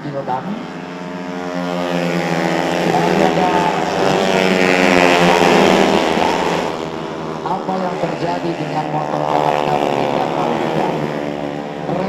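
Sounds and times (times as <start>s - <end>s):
engine revving: 0.0s - 12.0s.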